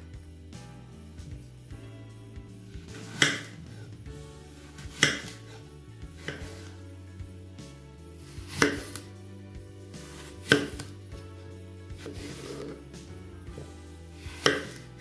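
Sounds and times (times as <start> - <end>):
quiet background music: 0.0 - 15.0
knife slicing apples: 2.6 - 6.9, 7.6 - 9.2, 9.8 - 15.0.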